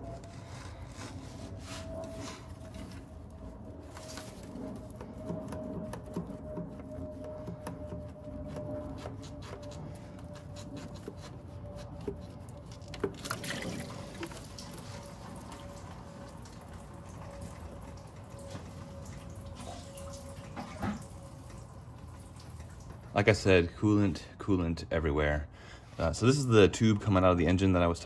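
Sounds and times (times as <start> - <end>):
coolant dripping and splashing: 1.9 - 23.8.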